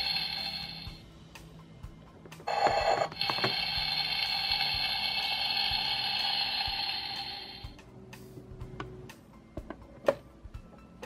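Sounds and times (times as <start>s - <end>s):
electronic sizzling hiss from toy: 0.0s - 1.0s, 2.5s - 7.7s.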